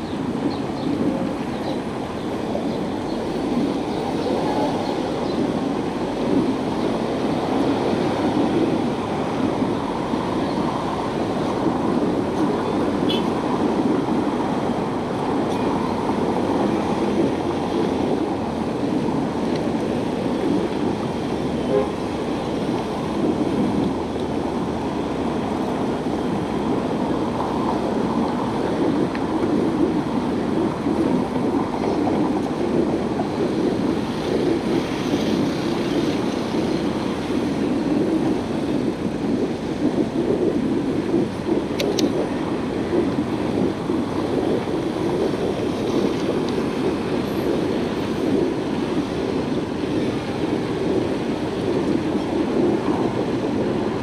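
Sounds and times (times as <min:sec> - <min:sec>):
bicycle tyres rumbling on path: 0:00.0 - 0:54.0
sharp click: 0:41.8 - 0:42.1.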